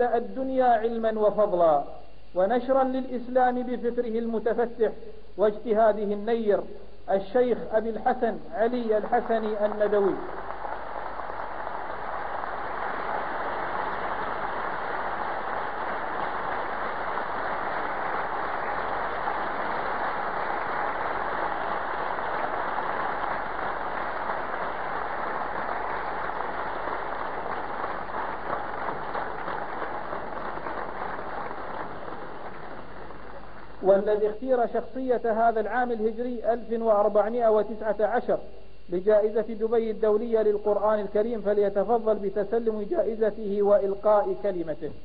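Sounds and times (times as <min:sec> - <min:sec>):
audience applauding: 0:09.0 - 0:33.9.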